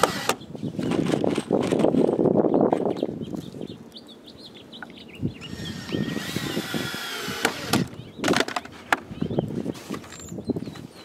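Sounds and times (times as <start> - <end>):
small birds chirping: 0.1 - 1.3, 2.4 - 11.0.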